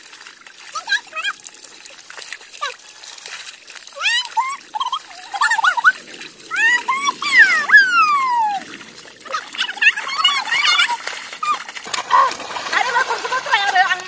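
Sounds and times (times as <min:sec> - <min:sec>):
splashing in water: 0:00.0 - 0:14.0
children shouting and squealing: 0:04.0 - 0:08.7, 0:09.3 - 0:12.4.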